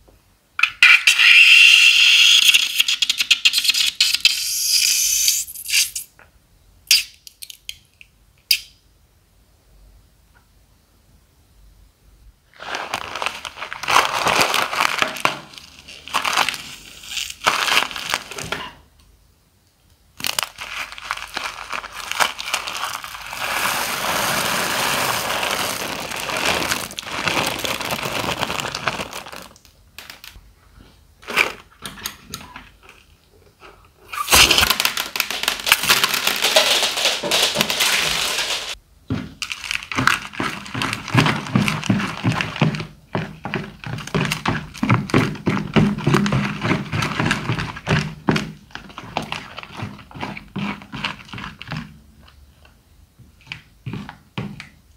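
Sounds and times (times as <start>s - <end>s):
plastic bag crinkling: 12.5s - 18.8s, 20.2s - 30.4s, 34.1s - 48.0s
crackly handling noises: 12.5s - 23.4s, 25.0s - 44.9s
beads pouring onto tray: 20.2s - 29.5s, 34.3s - 38.8s
plastic scraper mixing slime: 39.2s - 52.4s.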